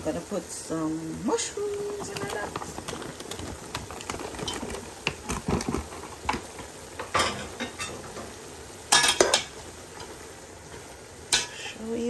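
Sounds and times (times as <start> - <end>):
chicken sizzling in a pot: 0.0 - 12.0
knocks and clatters against pot: 1.6 - 9.6.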